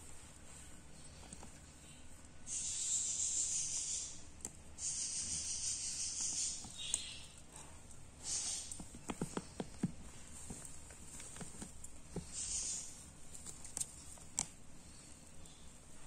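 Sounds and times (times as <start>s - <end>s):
baby birds hissing: 2.4s - 9.6s, 12.2s - 13.0s
light taps: 8.7s - 12.6s.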